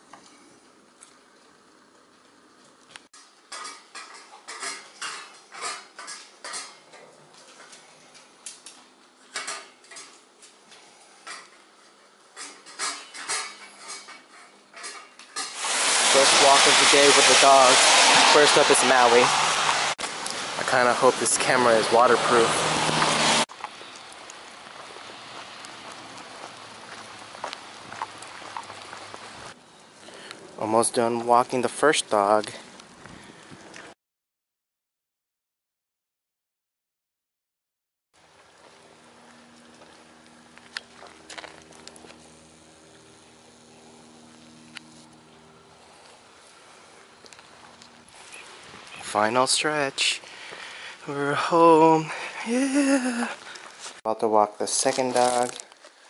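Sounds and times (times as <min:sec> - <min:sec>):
rain falling on pavement: 0:15.6 - 0:32.0.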